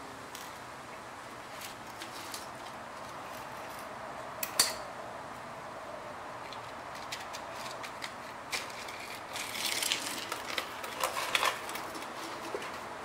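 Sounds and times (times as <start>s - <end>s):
cardboard rustling: 7.0s - 13.0s.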